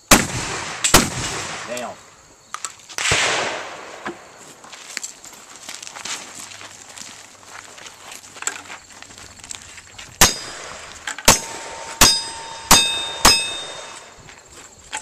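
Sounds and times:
bullet clanging on steel plate: 10.2 - 14.1.

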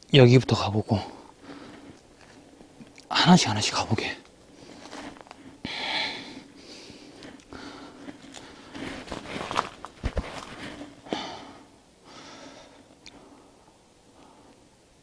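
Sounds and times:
dry weeds and twigs crackling: 0.9 - 11.4
sniffs and breaths: 4.5 - 13.6
footsteps: 8.1 - 11.0.

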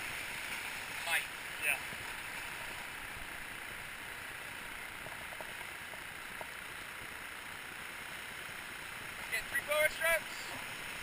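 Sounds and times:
faint ticks: 4.8 - 7.3.

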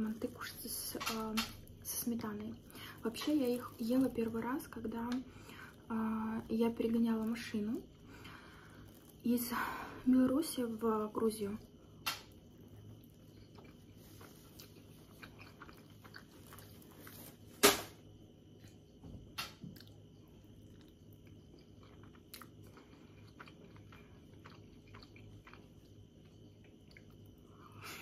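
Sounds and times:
chewing and biting: 12.1 - 17.5, 19.7 - 27.4.

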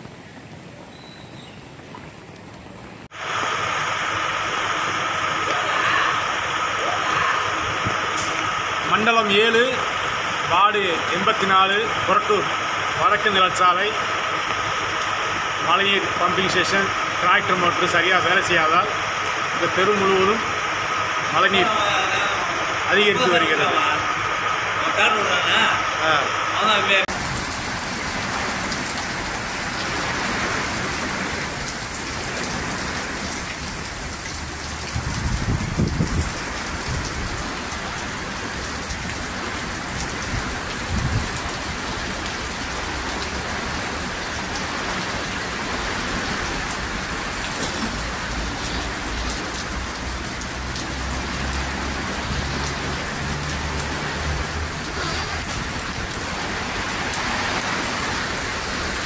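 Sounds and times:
heavy rain pouring: 0.0 - 59.0
low gusty rumbles: 25.8 - 42.0.

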